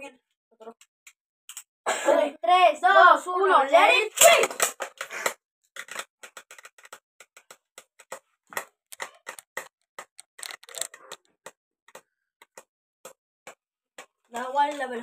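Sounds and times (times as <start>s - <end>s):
spinning tops clicking and knocking: 4.4s - 14.9s.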